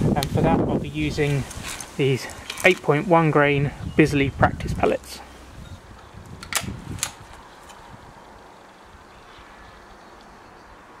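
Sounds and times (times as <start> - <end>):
wind hiss on microphone: 0.0 - 10.8
sharp clicks: 5.9 - 7.8.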